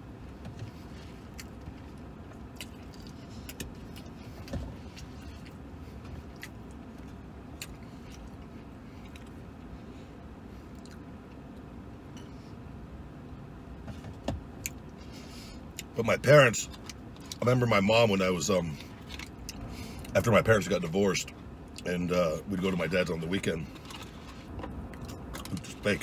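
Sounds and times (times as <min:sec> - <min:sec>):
low rumble in truck cab: 0:00.0 - 0:26.0
man chewing: 0:00.5 - 0:09.6, 0:10.6 - 0:11.6, 0:18.7 - 0:20.1, 0:23.7 - 0:25.8.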